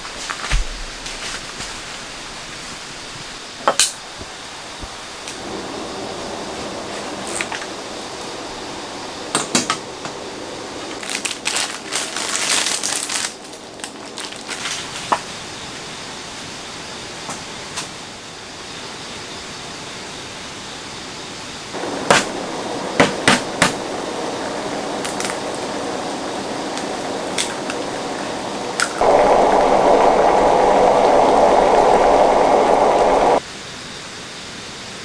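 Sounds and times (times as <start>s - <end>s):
steady hiss: 0.0s - 35.0s
broth boiling: 21.8s - 33.4s.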